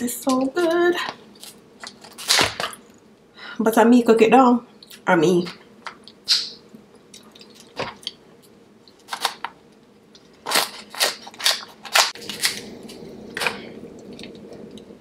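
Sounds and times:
wet eating smacks and crunches: 0:05.8 - 0:08.2.

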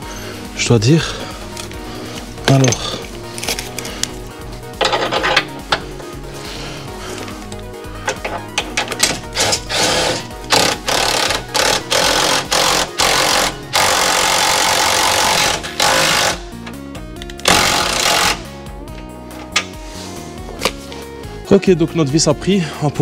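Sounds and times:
power tool driving a bolt: 0:08.1 - 0:18.5.

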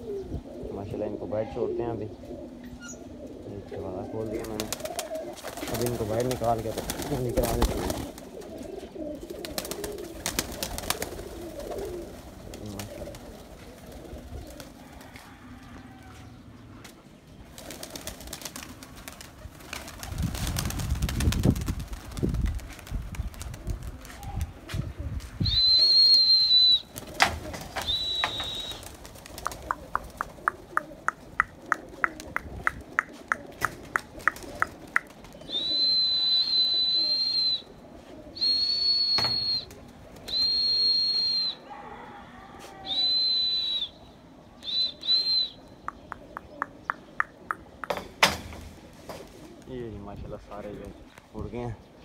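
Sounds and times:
high-pitched whistle blasts: 0:25.4 - 0:26.8, 0:35.6 - 0:37.6, 0:38.4 - 0:39.7, 0:40.3 - 0:41.6, 0:42.8 - 0:44.0
sharp knocks: 0:47.8 - 0:48.7.

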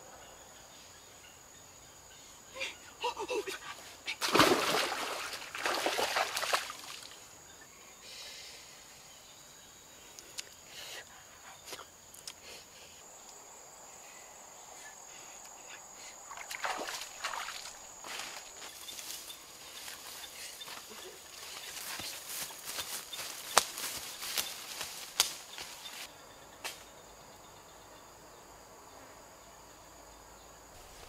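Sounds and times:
high insect drone: 0:00.0 - 0:31.0
wading in water: 0:04.2 - 0:07.1, 0:16.3 - 0:18.5
water splashing: 0:04.2 - 0:07.2, 0:16.3 - 0:18.5.

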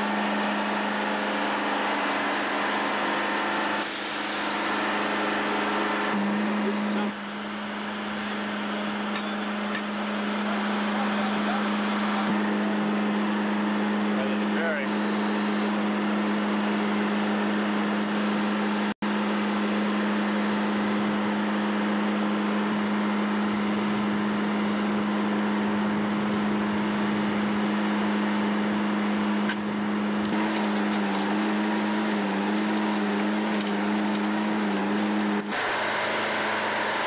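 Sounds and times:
machine humming: 0:00.0 - 0:37.0.

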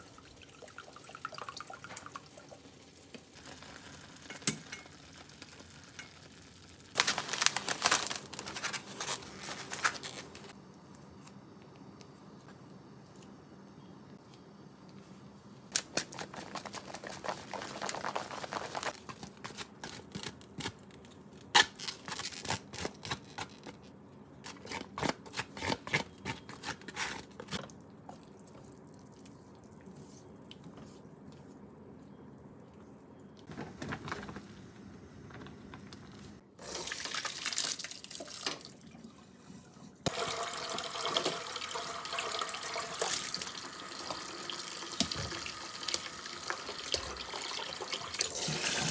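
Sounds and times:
tap water running into sink: 0:40.1 - 0:48.9.

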